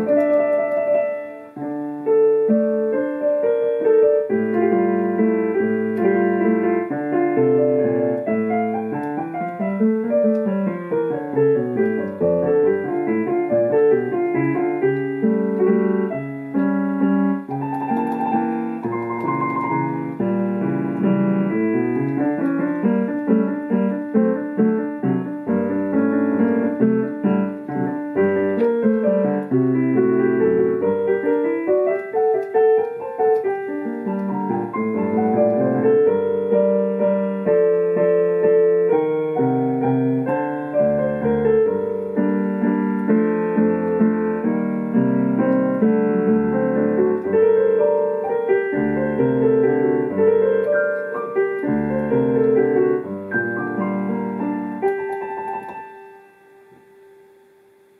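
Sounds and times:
digital piano playing lively piece: 0:00.0 - 0:57.9.

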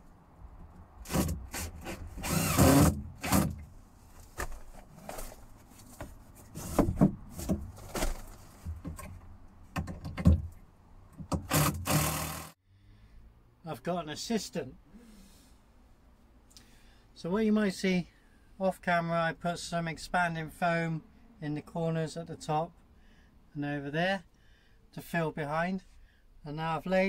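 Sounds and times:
cordless drill driving screws: 0:01.1 - 0:03.5, 0:11.4 - 0:12.6
wood knocking and scraping: 0:04.2 - 0:10.6.

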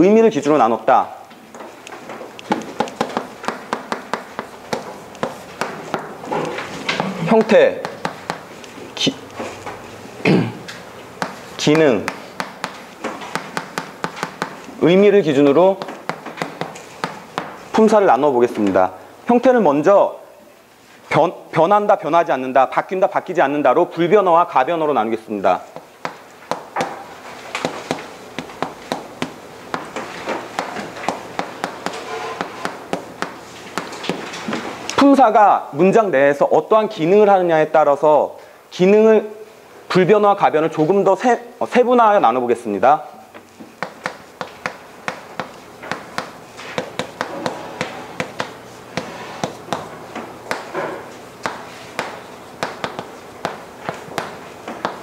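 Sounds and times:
chalk tapping on chalkboard: 0:01.5 - 0:09.8, 0:11.2 - 0:14.8, 0:15.5 - 0:18.0, 0:25.6 - 0:34.6, 0:43.6 - 0:55.0.

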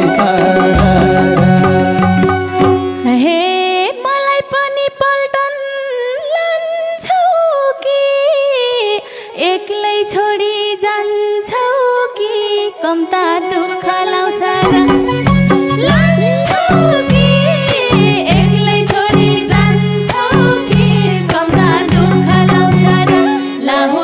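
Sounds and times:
folk band with drums: 0:00.0 - 0:03.1, 0:14.6 - 0:23.4
solo bowed string melody: 0:00.0 - 0:03.5, 0:12.8 - 0:23.4.

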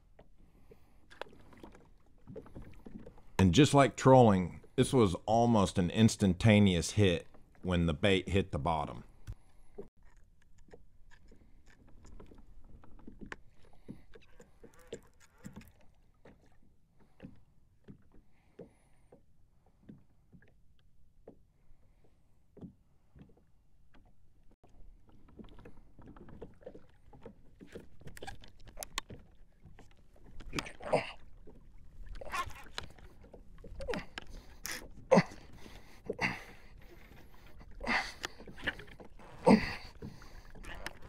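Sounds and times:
water lapping against kayak hull: 0:00.0 - 0:41.0
fishing gear clicks and knocks: 0:09.2 - 0:16.6, 0:25.2 - 0:41.0.

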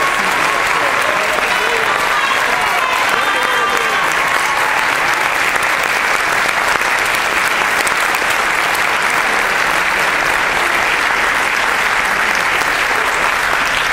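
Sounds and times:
audience applauding: 0:00.0 - 0:13.9.

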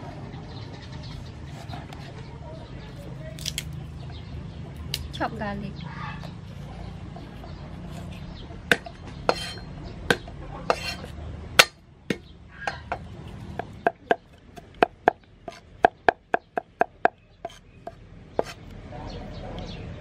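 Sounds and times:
cleaver chopping on wooden board: 0:08.7 - 0:18.6.

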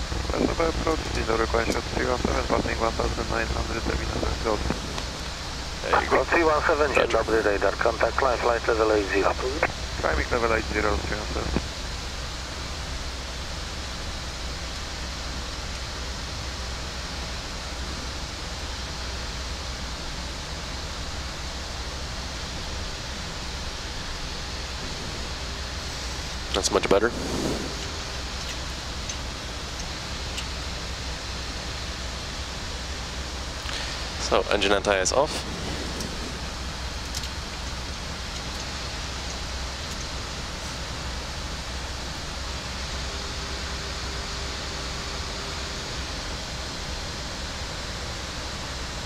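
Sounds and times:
airflow rushing over airframe: 0:00.0 - 0:07.2, 0:24.1 - 0:43.8
deep even rumble: 0:00.0 - 0:07.4, 0:24.5 - 0:30.4, 0:33.7 - 0:39.3
low hum: 0:00.0 - 0:16.0, 0:22.9 - 0:46.8
rush of air: 0:24.8 - 0:28.4, 0:35.3 - 0:37.0.

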